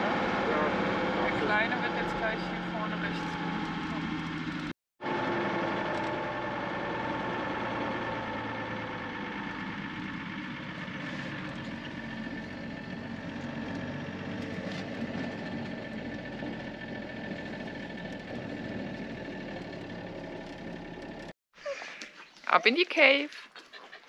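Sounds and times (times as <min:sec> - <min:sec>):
diesel engine running: 0:00.0 - 0:21.4
tyres on gravel: 0:09.7 - 0:21.3.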